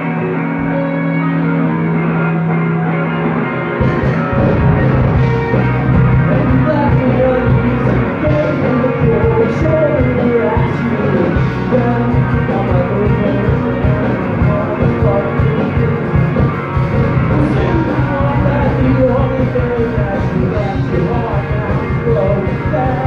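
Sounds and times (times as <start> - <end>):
electric guitars and bass: 0.0 - 23.0.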